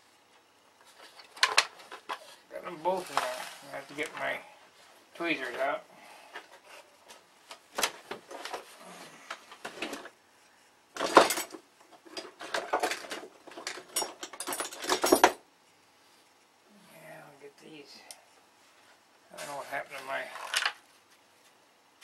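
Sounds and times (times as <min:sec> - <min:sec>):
metal tools clinking and rattling: 0:11.0 - 0:15.4.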